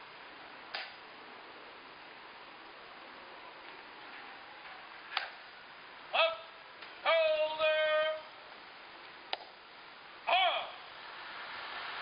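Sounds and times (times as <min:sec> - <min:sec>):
sharp click: 0:00.7 - 0:01.0, 0:05.1 - 0:05.4
soldier shouting drill commands: 0:06.1 - 0:08.4, 0:10.2 - 0:10.9.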